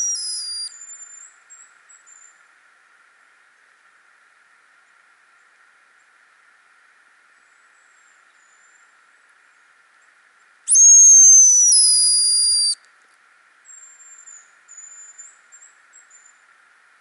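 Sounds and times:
high thin decoy whistle: 0:00.0 - 0:00.7, 0:10.7 - 0:12.8
faint high whistles: 0:00.0 - 0:01.2, 0:10.7 - 0:12.8.

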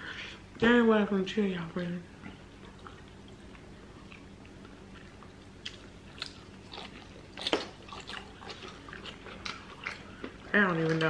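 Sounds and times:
biting and chewing: 0:02.6 - 0:11.0.

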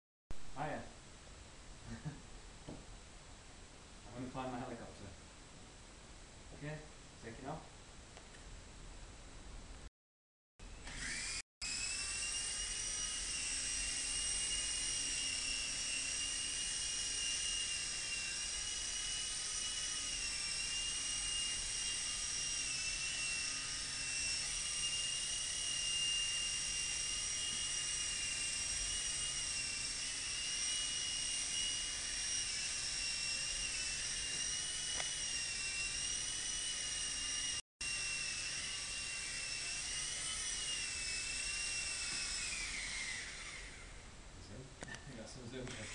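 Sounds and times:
toy helicopter motor whine: 0:10.6 - 0:44.1, 0:45.5 - 0:45.9.

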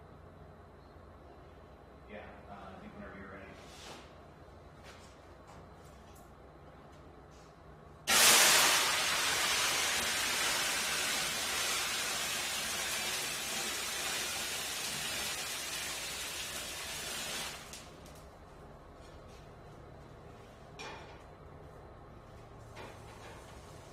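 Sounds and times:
grease fire rushing hiss: 0:08.1 - 0:17.9.

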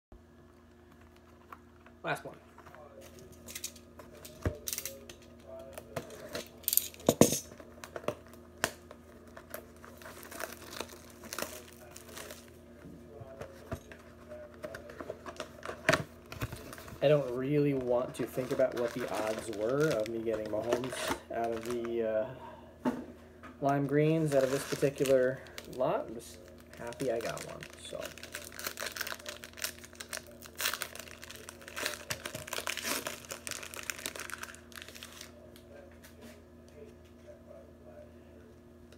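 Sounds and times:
wrapping rustling: 0:09.1 - 0:12.6, 0:14.6 - 0:22.0, 0:24.1 - 0:35.4.

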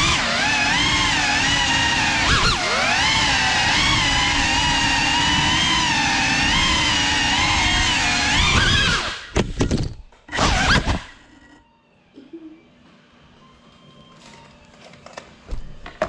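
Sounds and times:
drone motors whining: 0:00.0 - 0:12.4.

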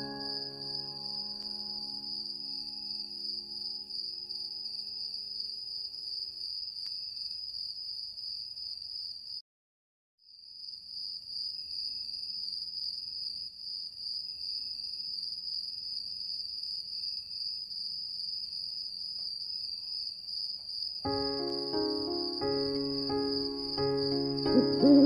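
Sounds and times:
instrumental music with held notes: 0:00.0 - 0:04.9, 0:21.1 - 0:25.0
crickets trilling: 0:11.4 - 0:25.0.

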